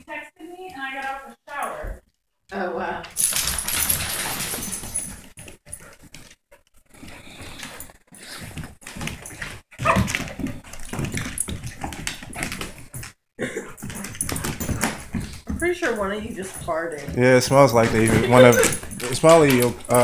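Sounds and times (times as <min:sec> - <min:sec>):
dogs vocalizing while playing: 0:03.4 - 0:17.2, 0:17.9 - 0:19.9.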